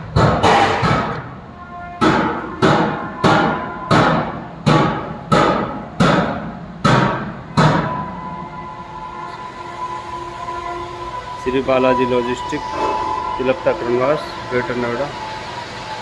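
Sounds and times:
hammer blows on metal: 1.9 - 8.2.

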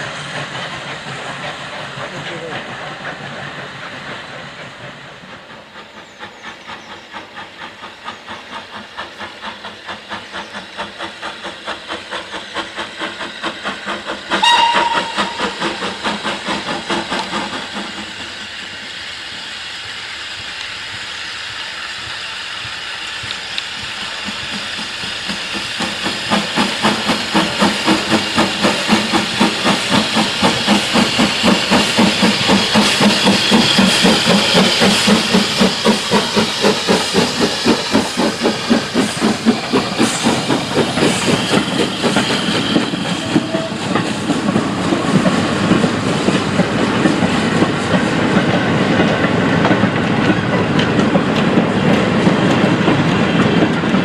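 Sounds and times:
hiss of steam: 0.0 - 54.0
steam locomotive exhaust beats: 0.0 - 54.0
steam whistle blast: 14.4 - 15.8, 43.0 - 44.0.

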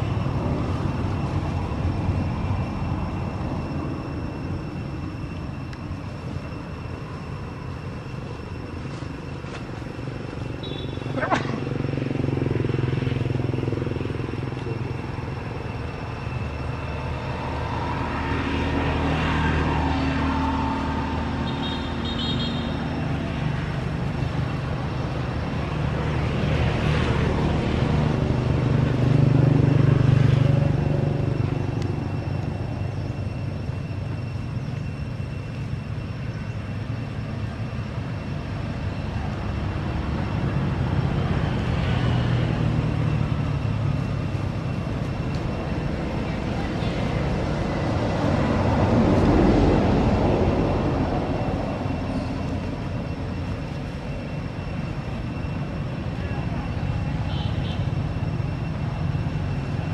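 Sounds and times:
vehicle engines running: 0.0 - 59.9
vehicle passing: 9.3 - 34.6, 38.4 - 54.8.

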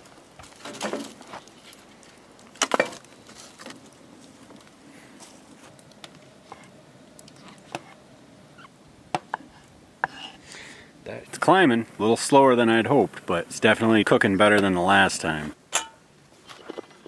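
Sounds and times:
logs clattering into firebox: 0.0 - 4.7, 15.7 - 16.1.

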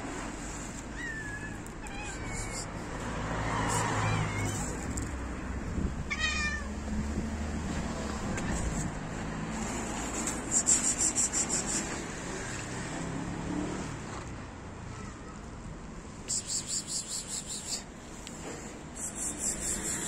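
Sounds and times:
cat meowing: 0.9 - 2.9, 3.6 - 5.1, 6.0 - 6.9.

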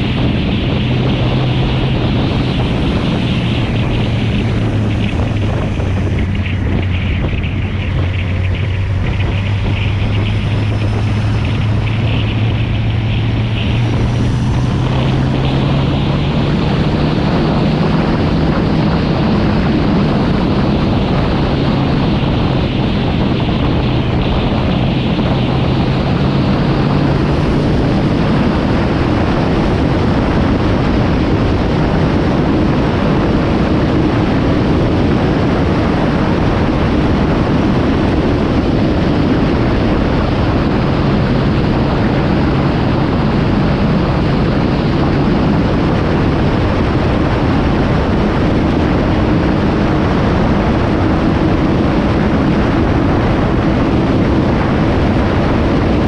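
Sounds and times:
motorcycle engine cruising: 0.0 - 56.0
wind rush on microphone: 0.0 - 56.0.

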